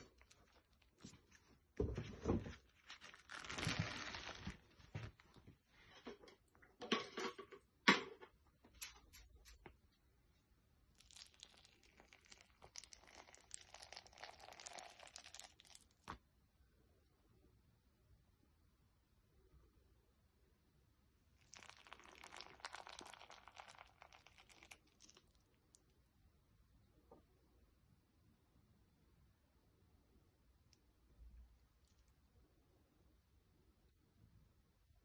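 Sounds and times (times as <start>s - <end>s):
plastic film crinkling and tearing: 2.6s - 5.2s.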